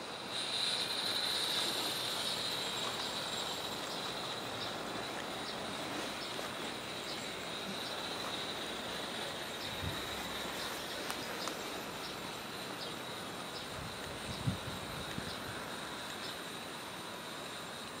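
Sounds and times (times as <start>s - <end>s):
model train rolling on track: 0.0s - 18.0s
light ticks: 10.6s - 12.2s.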